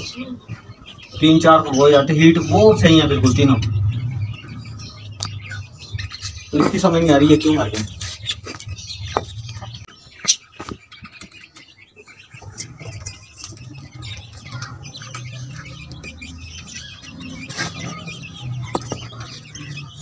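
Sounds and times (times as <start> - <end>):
birds chirping: 0.0 - 20.0
chicken clucking: 0.0 - 20.0
low rumble: 1.2 - 9.9.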